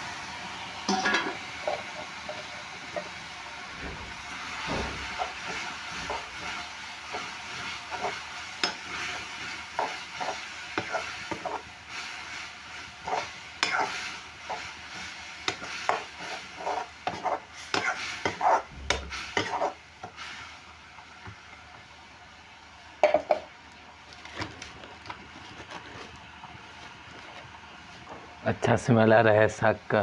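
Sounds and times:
greens sizzling in hot oil: 0.0 - 30.0
stirring and scraping in pan: 0.9 - 3.3, 4.1 - 21.4.

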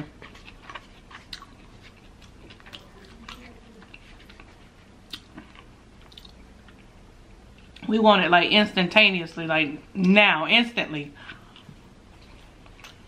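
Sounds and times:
close-miked chewing: 0.0 - 7.9, 11.2 - 13.0.

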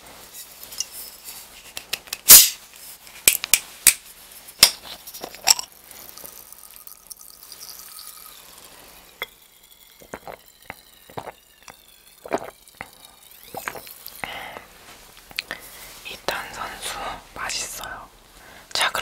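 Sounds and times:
bottle seal hissing: 2.3 - 2.6, 4.7 - 14.7.

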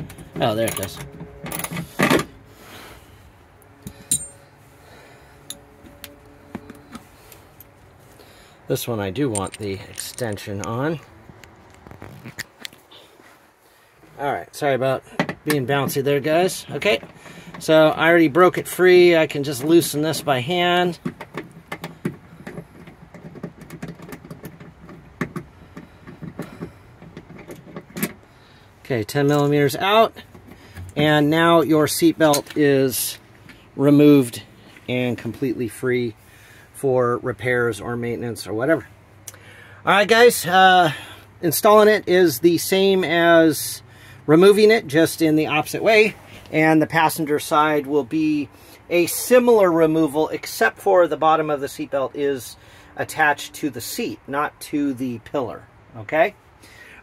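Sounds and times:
light metal clinks: 9.3 - 10.5.

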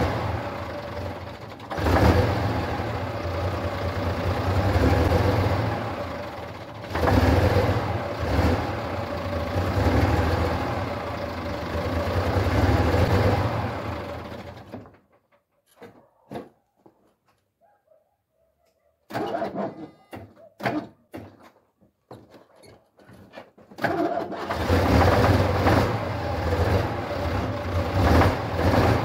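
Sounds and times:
diesel truck engine running unevenly: 0.0 - 14.9, 23.8 - 29.0.

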